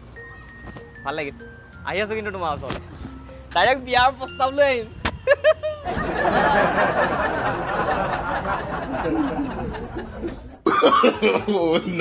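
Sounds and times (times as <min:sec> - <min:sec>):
women laughing and giggling: 0:05.2 - 0:12.0.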